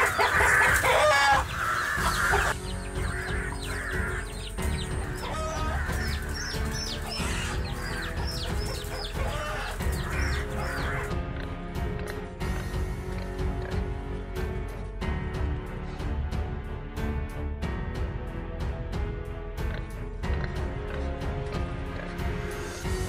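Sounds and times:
chicken squawking in distress: 0:00.0 - 0:04.4, 0:05.0 - 0:11.1
background music: 0:00.0 - 0:23.0.

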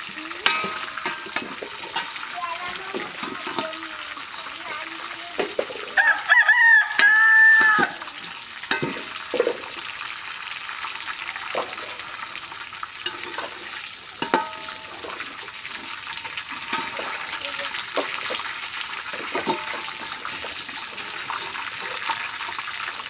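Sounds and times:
rooster crowing: 0:06.0 - 0:08.1.

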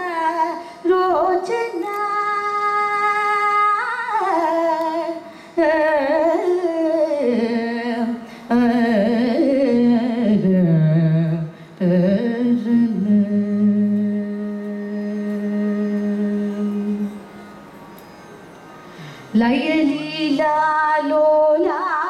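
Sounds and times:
woman singing classical vocal: 0:00.0 - 0:17.2, 0:19.3 - 0:22.0
singer breathing: 0:05.2 - 0:05.6, 0:11.5 - 0:11.8, 0:18.8 - 0:19.4.

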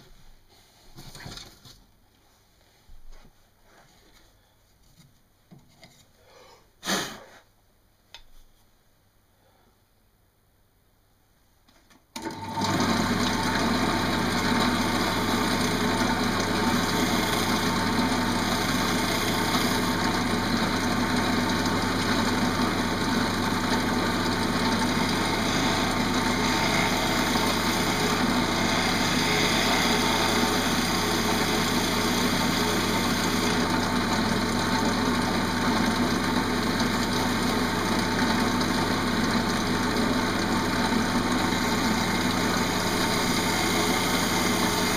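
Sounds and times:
wood lathe motor hum: 0:12.2 - 0:44.9
gouge scraping wood: 0:24.8 - 0:33.6.

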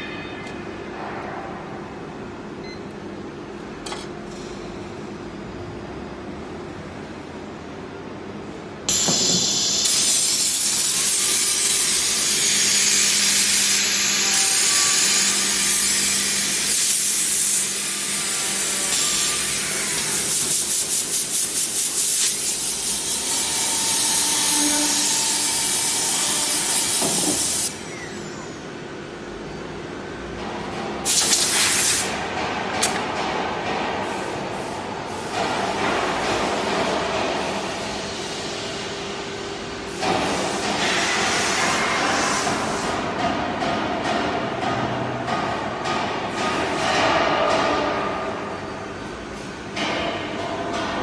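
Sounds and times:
drilling machine hiss: 0:08.9 - 0:27.8.

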